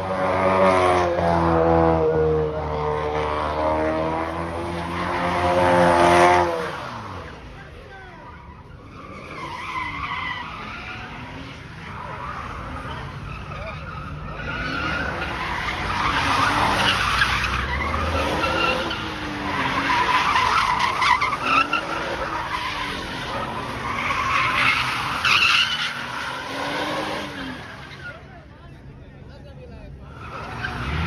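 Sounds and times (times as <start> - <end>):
car engine revving: 0.0 - 7.8, 8.7 - 28.2, 30.0 - 31.0
tyres screeching: 4.8 - 28.3.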